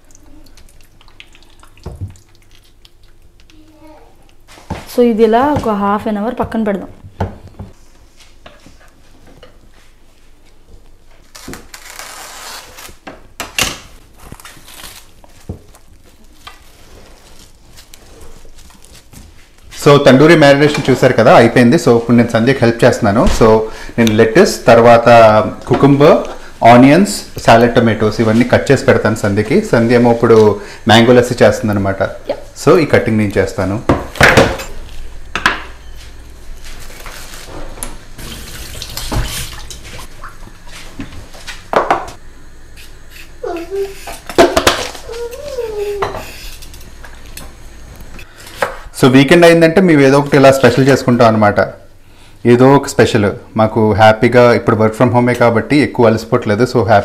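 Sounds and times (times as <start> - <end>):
cling film crinkling: 11.2 - 13.0, 14.0 - 19.7
tap water running into sink: 37.8 - 40.5.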